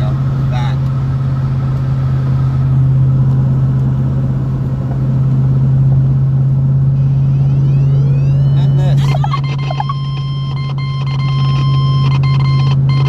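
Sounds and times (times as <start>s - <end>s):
truck engine drone: 0.0s - 13.0s
faint rising whistle-like tones: 6.9s - 8.9s.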